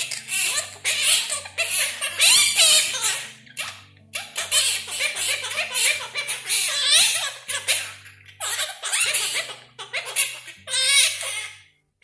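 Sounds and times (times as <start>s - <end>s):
parrot chattering: 0.0s - 11.6s
soft background melody: 0.0s - 12.0s.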